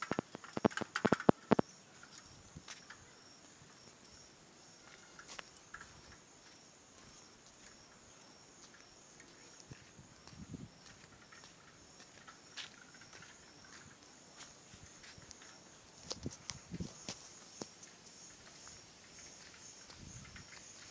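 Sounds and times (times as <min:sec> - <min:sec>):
sharp clicks and knocks: 0:00.0 - 0:02.2
insects chirring: 0:00.0 - 0:20.9.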